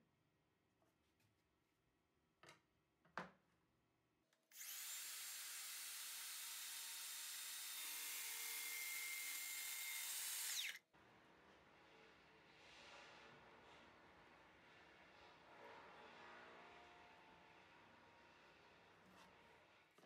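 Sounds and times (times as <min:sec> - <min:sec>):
circular saw cutting board: 0:04.5 - 0:10.8.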